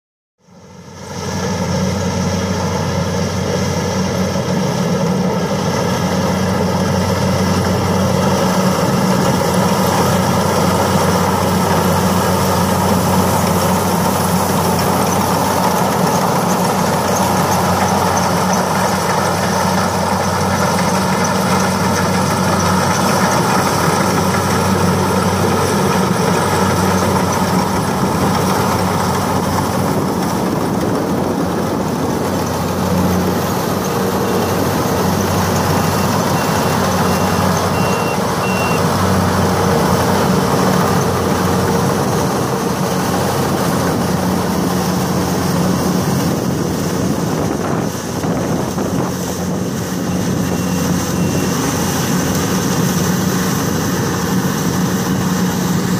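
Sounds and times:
diesel engine running: 0.4s - 55.9s
high beeps: 35.8s - 38.9s.

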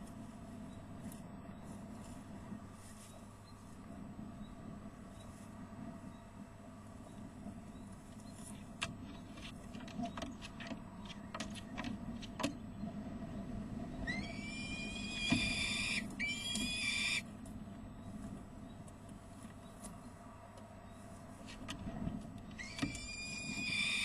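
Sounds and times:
falcon harsh alarm calls: 14.0s - 17.2s, 22.6s - 24.0s.

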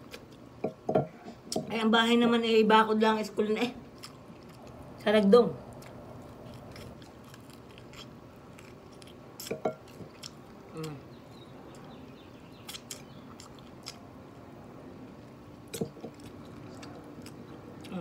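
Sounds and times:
person chewing: 3.9s - 4.8s, 5.7s - 14.1s, 15.1s - 18.0s
person humming: 10.7s - 11.1s.

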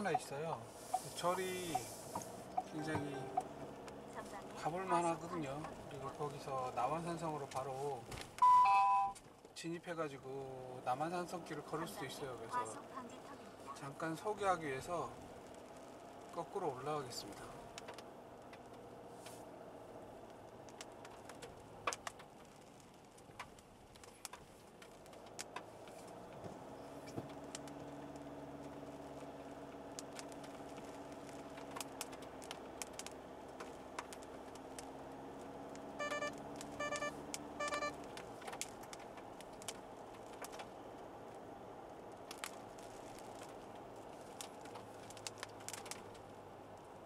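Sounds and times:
low engine hum: 0.0s - 8.4s, 10.1s - 47.0s
short electronic chimes: 2.7s - 3.5s
light ticks: 20.2s - 26.4s, 27.0s - 40.7s, 42.1s - 46.9s.

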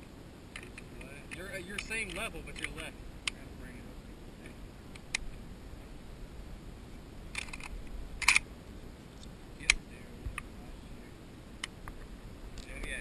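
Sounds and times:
rifle mechanical clicks: 7.3s - 8.4s.

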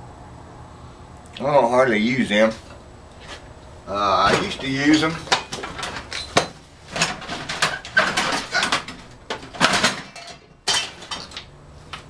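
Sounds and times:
metal tools clattering and clinking: 4.2s - 11.5s.

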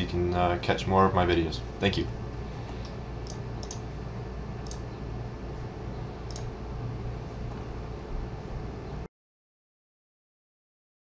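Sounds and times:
low room hum: 0.0s - 9.1s
computer mouse clicks: 2.8s - 3.8s, 4.6s - 4.8s, 6.3s - 6.5s.

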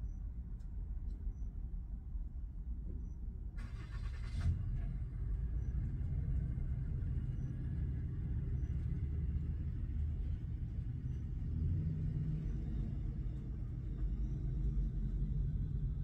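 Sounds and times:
vehicle engines rumbling: 4.4s - 16.0s.

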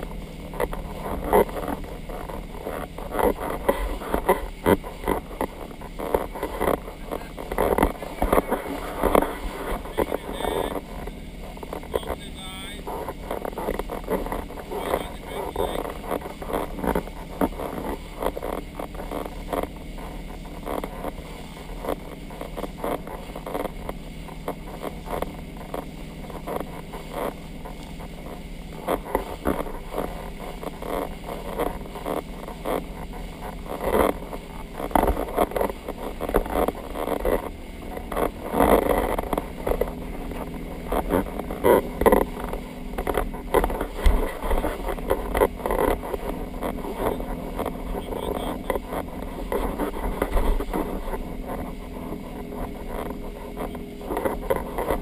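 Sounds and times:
motorboat engine droning: 0.0s - 55.0s
wind and water rushing: 0.0s - 55.0s.

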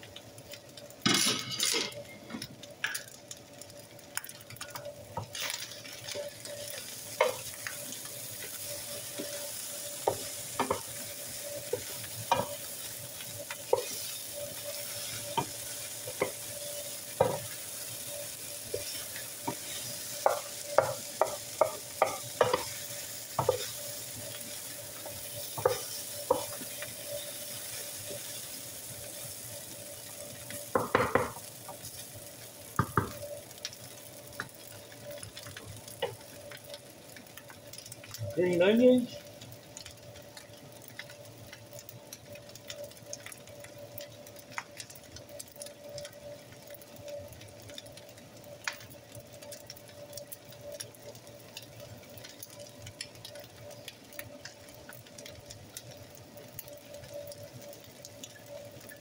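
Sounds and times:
rice sizzling in a skillet: 0.0s - 59.0s
wooden spoon knocking a pan: 7.2s - 7.5s, 9.1s - 11.0s, 13.7s - 18.2s, 18.8s - 23.7s, 25.1s - 26.8s, 30.7s - 31.4s, 32.8s - 33.2s.

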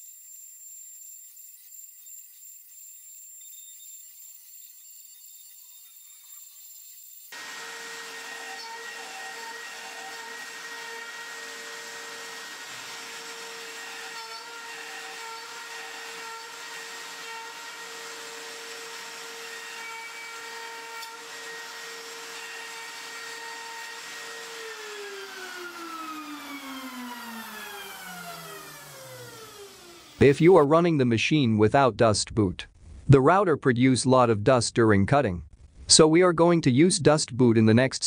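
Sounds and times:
router spindle high whine: 7.3s - 30.4s.

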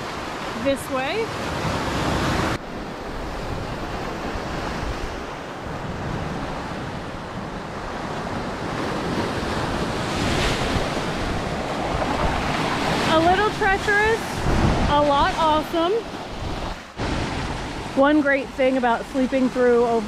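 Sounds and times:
waves breaking on rocks: 0.0s - 20.0s
wind buffeting microphone: 1.0s - 20.0s.

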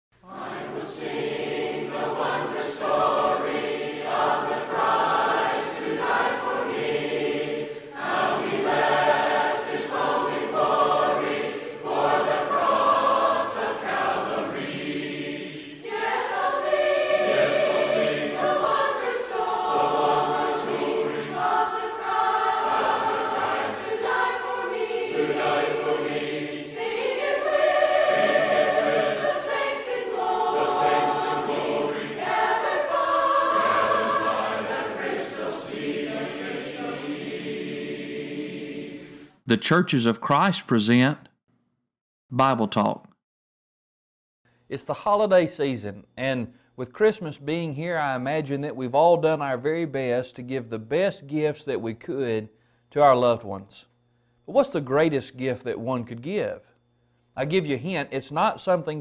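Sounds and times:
choir singing a cappella: 0.2s - 39.4s.

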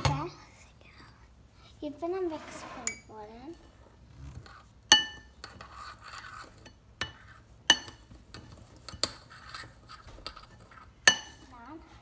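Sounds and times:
spoon stirring gritty crumbs: 2.2s - 11.7s
spoon clinking against bowl: 4.9s - 9.7s, 11.0s - 11.5s.

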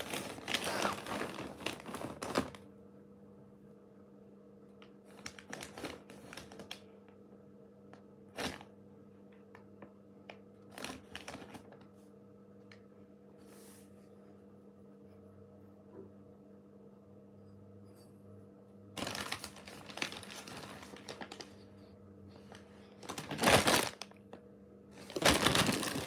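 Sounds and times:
plastic bag crinkling: 0.0s - 2.6s, 5.1s - 6.8s, 10.7s - 11.8s, 19.0s - 21.6s, 22.4s - 24.2s, 25.0s - 26.0s.

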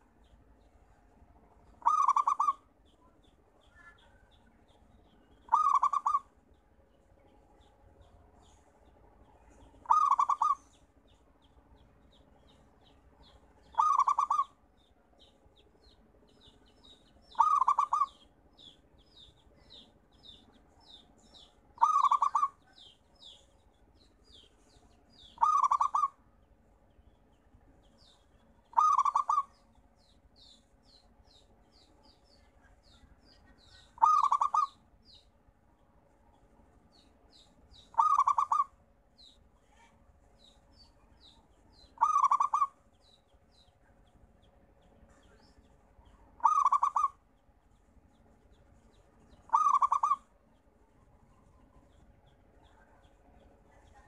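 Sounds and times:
bird high chirps: 1.6s - 35.4s, 36.3s - 54.0s
dove cooing: 1.8s - 2.6s, 5.5s - 6.3s, 9.8s - 10.6s, 13.7s - 14.5s, 17.3s - 18.2s, 21.8s - 22.6s, 25.4s - 26.2s, 28.7s - 29.5s, 34.0s - 34.8s, 37.9s - 38.7s, 42.0s - 42.7s, 46.4s - 47.1s, 49.5s - 50.2s.

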